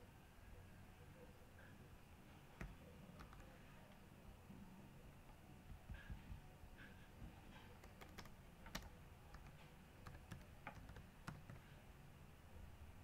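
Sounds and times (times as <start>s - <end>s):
typing on computer keyboard: 2.6s - 3.5s, 7.6s - 11.7s.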